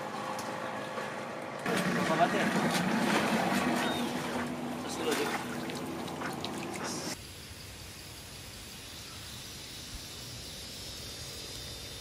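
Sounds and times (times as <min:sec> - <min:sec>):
boat noise: 0:00.0 - 0:07.2
insects trilling: 0:07.1 - 0:12.0.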